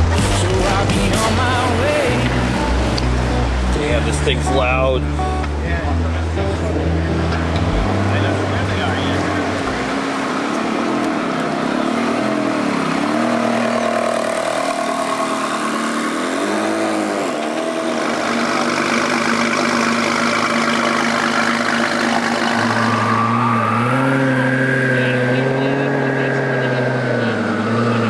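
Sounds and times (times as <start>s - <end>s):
car engine idling: 0.0s - 28.0s
car engine throttle blips: 0.0s - 28.0s.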